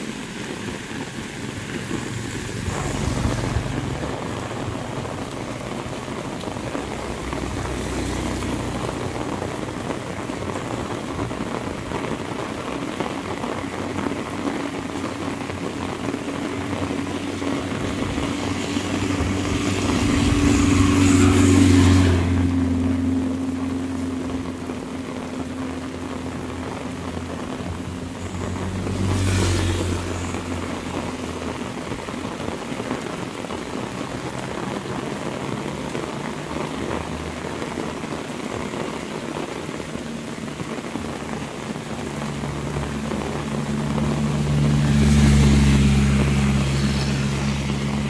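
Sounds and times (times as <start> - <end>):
heavy rain on road and leaves: 0.0 - 48.0
vehicle engine approaching: 0.0 - 48.0
motorcycle engine passing: 17.4 - 23.2.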